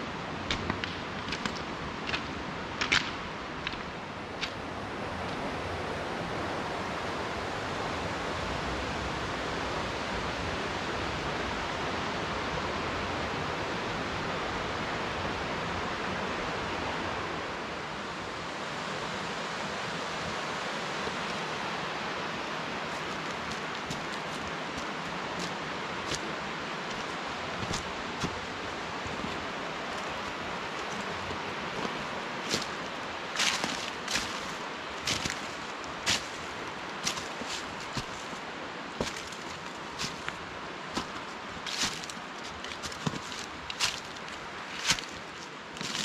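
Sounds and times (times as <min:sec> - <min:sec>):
stream water rushing: 0:00.0 - 0:46.0
footsteps on loose stones: 0:00.5 - 0:04.6, 0:22.9 - 0:38.4, 0:39.0 - 0:46.0.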